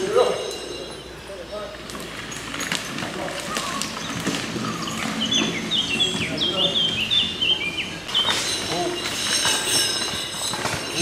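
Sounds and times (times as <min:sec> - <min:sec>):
people's voices: 0:00.0 - 0:09.4
outdoor noise: 0:00.0 - 0:11.0
songbird singing: 0:02.8 - 0:11.0.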